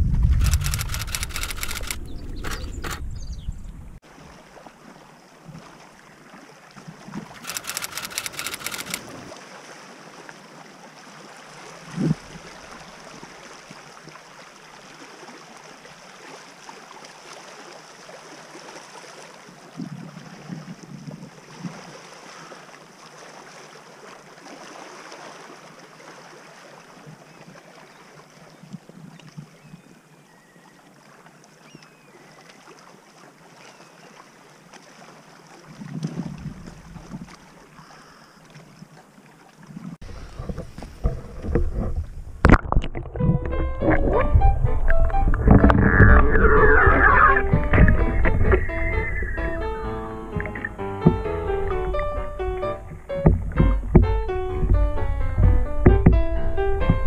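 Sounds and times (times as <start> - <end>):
water lapping: 0.0 - 57.0
wind: 0.0 - 57.0
rapid clicking: 0.4 - 3.0, 7.4 - 9.0
sharp thump: 50.4 - 57.0
soft knocks: 50.4 - 57.0.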